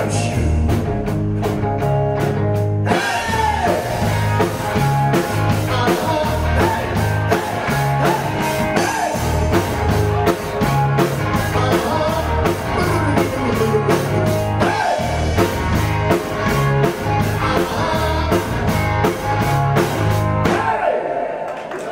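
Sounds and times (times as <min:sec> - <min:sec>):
electric guitar: 0:00.0 - 0:20.8
drum kit beat: 0:00.0 - 0:20.9
bass guitar: 0:00.0 - 0:21.0
person singing: 0:02.9 - 0:04.2, 0:05.4 - 0:09.7, 0:11.3 - 0:15.4, 0:17.2 - 0:18.8.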